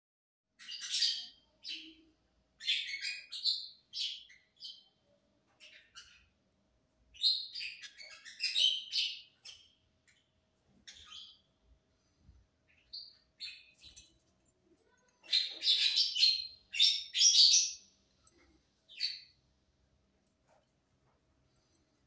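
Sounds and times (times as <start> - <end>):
lovebird chirping and chattering: 0.6 - 5.0, 5.6 - 6.4, 7.1 - 11.5, 12.7 - 14.2, 14.9 - 19.4.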